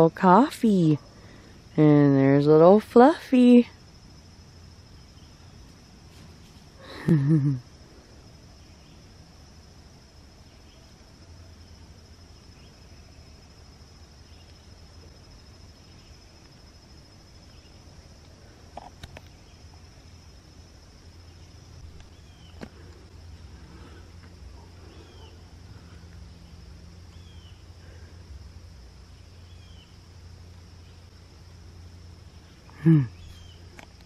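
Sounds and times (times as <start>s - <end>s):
crickets trilling: 0.0s - 34.0s
faint chirps: 10.4s - 20.3s, 21.0s - 30.2s, 31.8s - 34.0s.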